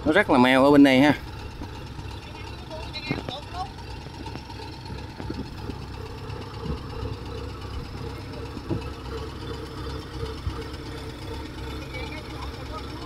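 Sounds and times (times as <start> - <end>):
diesel engine idling: 0.0 - 13.0.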